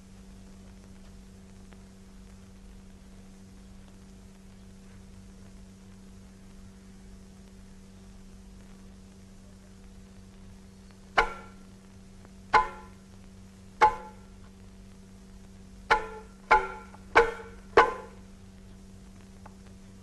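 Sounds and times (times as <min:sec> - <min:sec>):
lute strummed: 0:11.2 - 0:11.6, 0:12.6 - 0:13.0, 0:13.8 - 0:14.3, 0:15.9 - 0:18.2.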